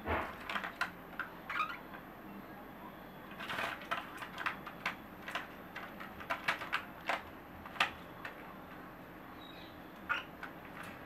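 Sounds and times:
cockatiels clicking and tapping: 0:00.3 - 0:02.0, 0:03.3 - 0:08.8, 0:10.0 - 0:11.0.

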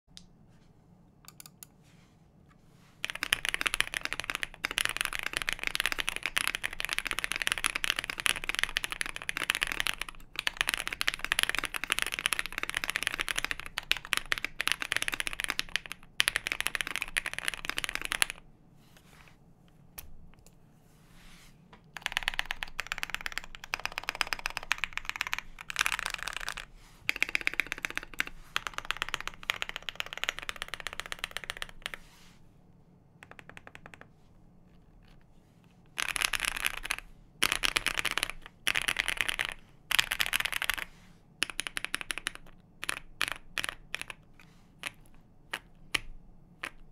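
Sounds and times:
fast typing on mechanical keyboard: 0:03.0 - 0:18.4, 0:22.0 - 0:32.0, 0:33.2 - 0:34.0, 0:36.0 - 0:46.9.

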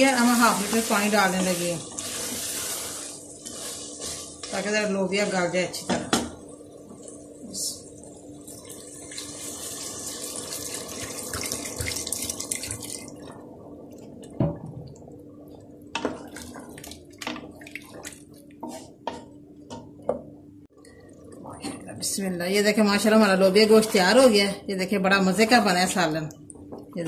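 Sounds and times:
wooden spoon stirring: 0:00.0 - 0:05.4, 0:15.9 - 0:19.3
water pouring into a pot: 0:08.0 - 0:13.4.

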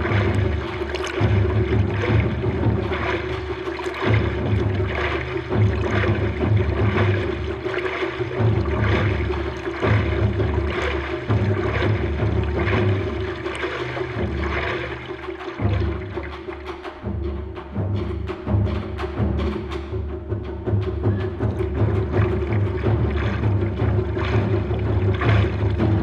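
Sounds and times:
water splashing against paddleboard: 0:00.0 - 0:20.0, 0:21.2 - 0:26.0.

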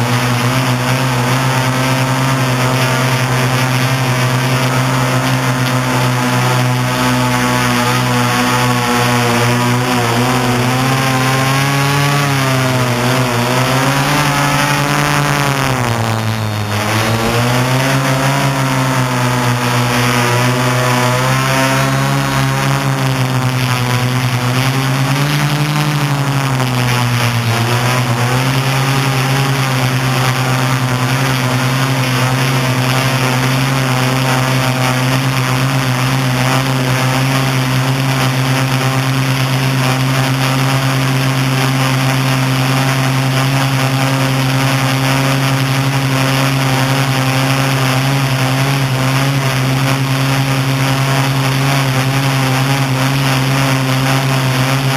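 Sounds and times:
drone propellers buzzing: 0:00.0 - 0:54.9.

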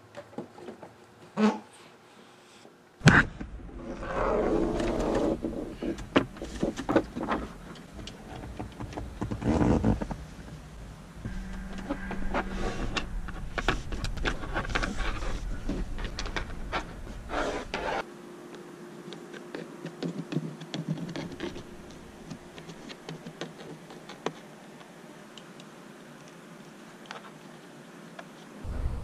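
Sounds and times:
low steady hum: 0:03.0 - 0:19.3, 0:20.9 - 0:23.3, 0:28.6 - 0:29.0.

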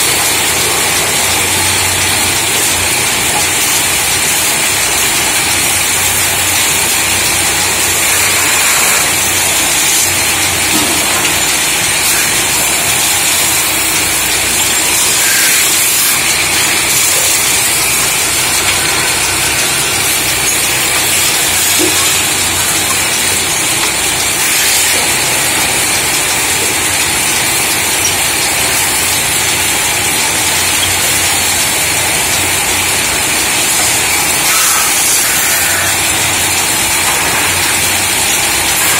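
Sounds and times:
hiss of metal being worked: 0:06.1 - 0:27.0, 0:34.0 - 0:38.9.

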